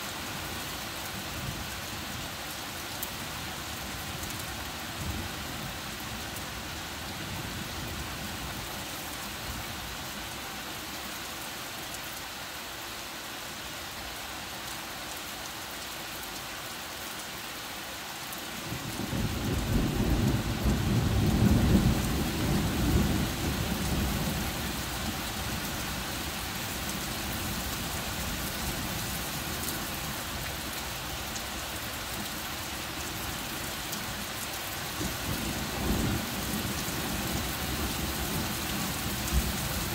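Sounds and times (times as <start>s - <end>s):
heavy rain falling: 0.0s - 39.9s
low rumble of thunder: 18.8s - 25.6s.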